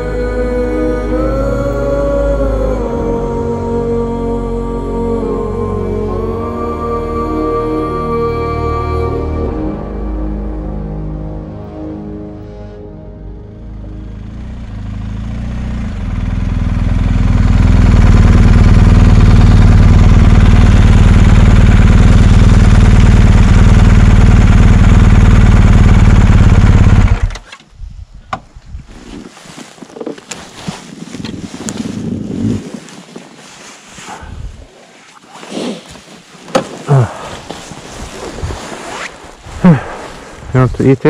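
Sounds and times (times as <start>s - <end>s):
motorcycle engine: 12.9s - 27.6s
rushing wind: 26.0s - 34.9s, 35.5s - 41.0s.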